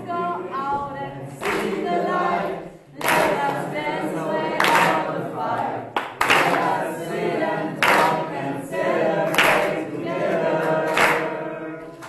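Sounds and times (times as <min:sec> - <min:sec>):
group of voices singing: 0:00.0 - 0:12.0
sharp hand claps: 0:01.4 - 0:01.8, 0:03.0 - 0:03.7, 0:04.6 - 0:05.2, 0:06.0 - 0:06.8, 0:07.8 - 0:08.3, 0:09.2 - 0:09.8, 0:10.6 - 0:12.0.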